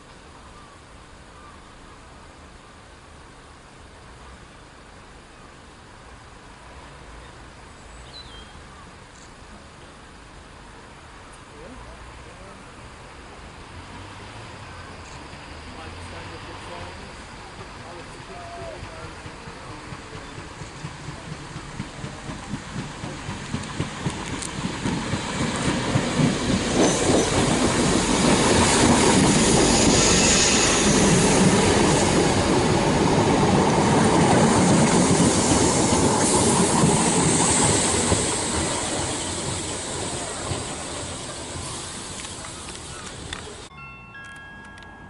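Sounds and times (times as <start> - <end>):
electric train passing: 12.6 - 45.0
wheels clacking over rail joints: 17.5 - 43.7.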